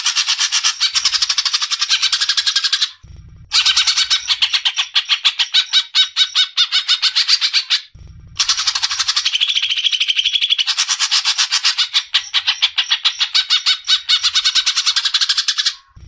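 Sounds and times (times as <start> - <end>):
bird chattering song: 0.0 - 16.0.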